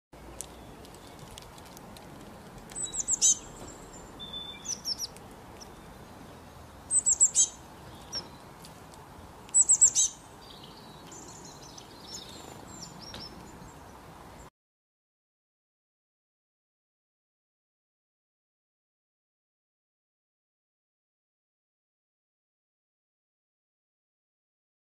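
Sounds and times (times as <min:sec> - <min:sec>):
songbird chirping: 0:00.2 - 0:14.5.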